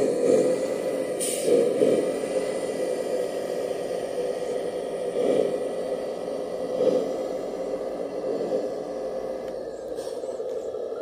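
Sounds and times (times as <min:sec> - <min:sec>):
toy truck drive train whir: 0:00.0 - 0:11.0.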